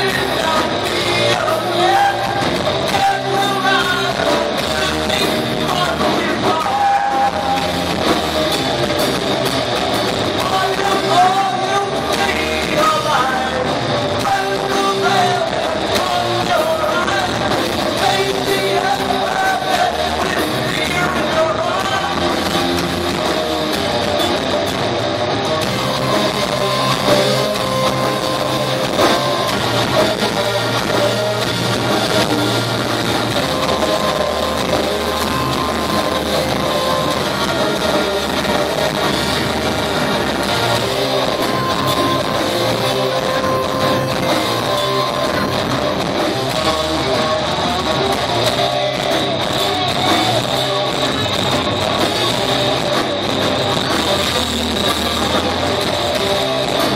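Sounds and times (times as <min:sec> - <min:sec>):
person singing: 0:00.0 - 0:08.3, 0:10.3 - 0:23.0, 0:25.7 - 0:56.9
live rock band playing: 0:00.0 - 0:56.9
held guitar notes: 0:21.8 - 0:56.9.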